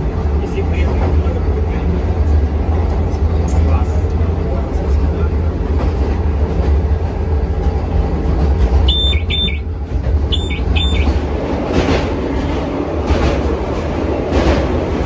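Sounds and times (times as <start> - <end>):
train running gear rumbling: 0.0 - 15.0
high electronic beeps: 8.9 - 9.6, 10.3 - 11.1.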